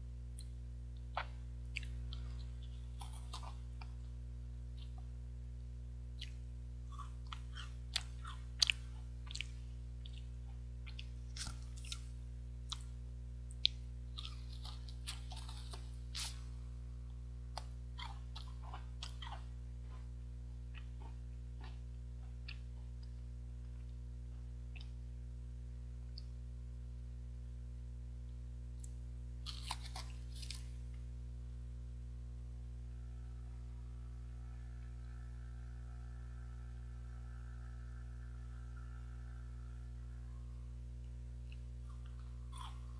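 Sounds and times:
steady low hum: 0.0 - 42.9
chewing: 0.4 - 4.1, 6.2 - 16.6, 17.5 - 23.2, 29.4 - 30.7, 41.0 - 42.9
cereal bar crunching: 0.4 - 4.2, 6.2 - 16.6, 17.5 - 23.1, 28.8 - 31.0, 41.0 - 42.9.

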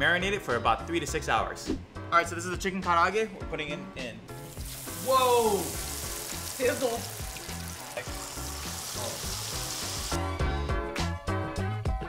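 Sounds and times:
chicken deep-frying in oil: 4.5 - 10.2.

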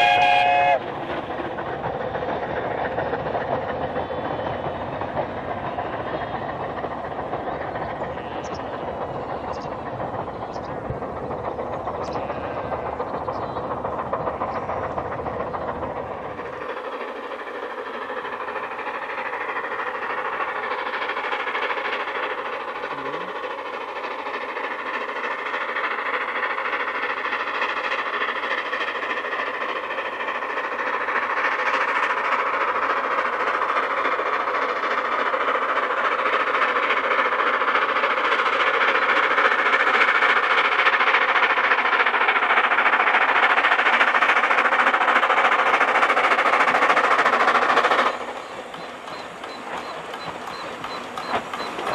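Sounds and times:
steam locomotive exhaust beats: 0.0 - 51.9.

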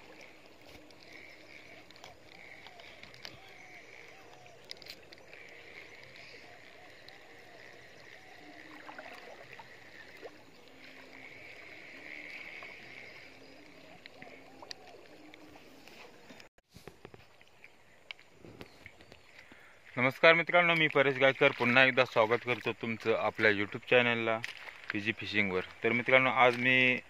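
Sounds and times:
water lapping: 0.0 - 16.5.

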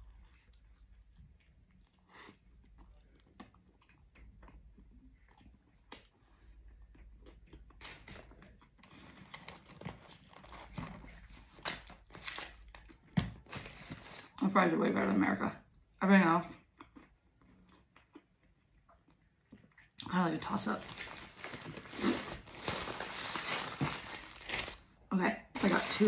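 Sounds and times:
chewing with soft crunches: 0.0 - 14.4, 15.7 - 20.2
foil wrappers crinkling: 9.0 - 14.4, 20.5 - 24.9, 25.6 - 26.0.

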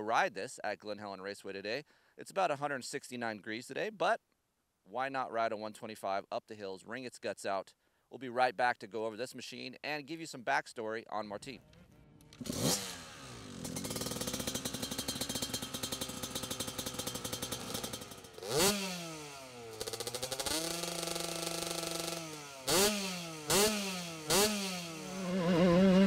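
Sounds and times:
two-stroke engine idling and revving: 11.7 - 26.0.

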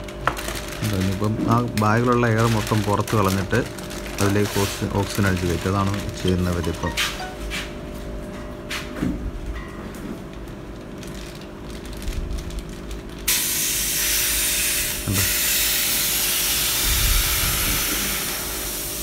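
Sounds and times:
oxygen hissing from hose: 13.3 - 19.0.

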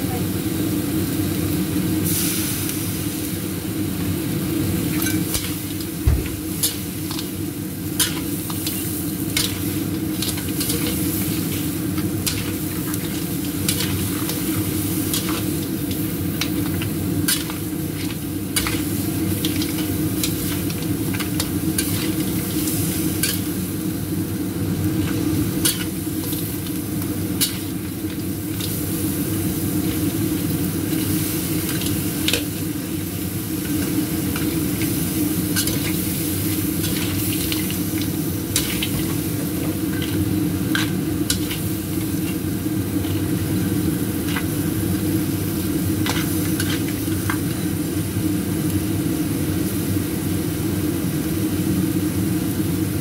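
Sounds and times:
crab sizzling in a wok: 0.0 - 53.0
metal spatula scraping and clacking: 8.0 - 9.6, 12.0 - 14.5, 16.4 - 22.3, 23.2 - 23.5, 25.6 - 26.0, 27.4 - 27.7, 35.6 - 36.0, 38.5 - 41.6, 46.0 - 47.4.

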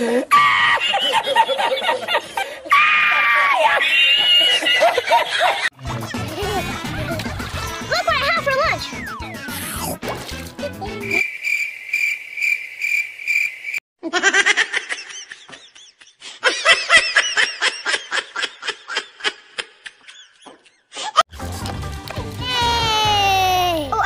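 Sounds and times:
high-pitched laughter: 0.3 - 8.9, 14.0 - 21.2
cricket chirping: 11.1 - 13.8.

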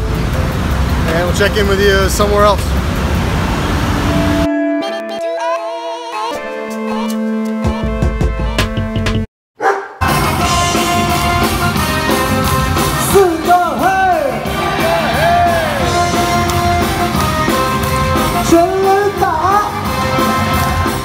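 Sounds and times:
stadium cheer music with singing: 10.0 - 21.0
people shouting: 12.9 - 17.0.

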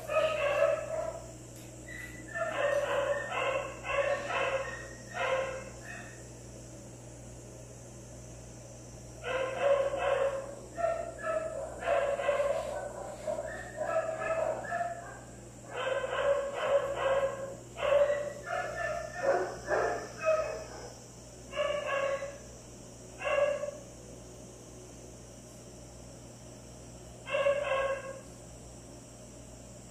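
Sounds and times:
dog yipping and whining: 1.9 - 5.2.

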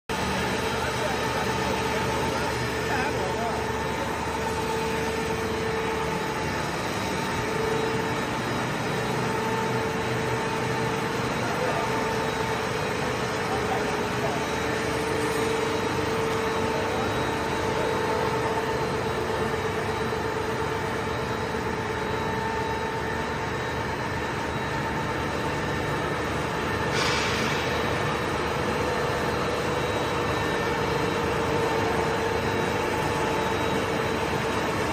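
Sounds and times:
industrial machinery drone: 0.1 - 34.9
brief high hiss: 26.9 - 27.8.

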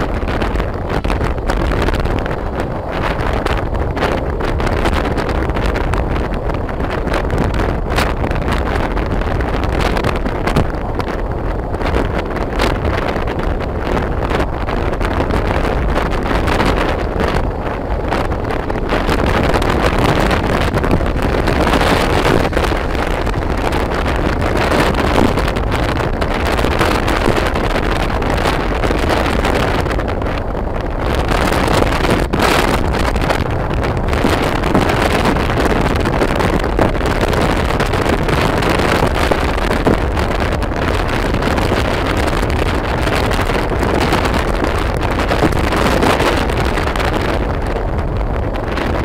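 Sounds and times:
motorbike running: 0.0 - 49.0
road noise: 0.0 - 49.0
wind buffeting microphone: 0.0 - 49.0.

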